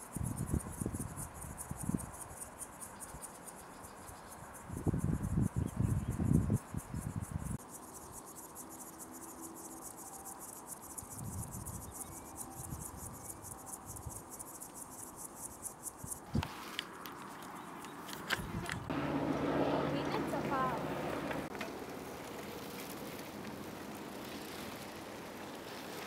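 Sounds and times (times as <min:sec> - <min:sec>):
insects chirping: 0:00.0 - 0:26.0
low rumbling noise: 0:18.5 - 0:24.2.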